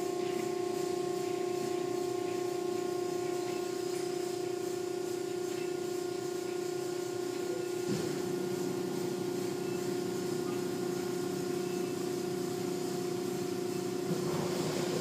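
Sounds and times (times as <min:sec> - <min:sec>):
car wash machine hum: 0:00.0 - 0:15.0.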